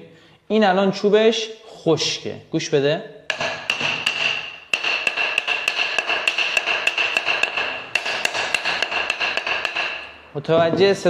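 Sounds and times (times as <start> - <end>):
small hammer tapping log: 3.3 - 10.1.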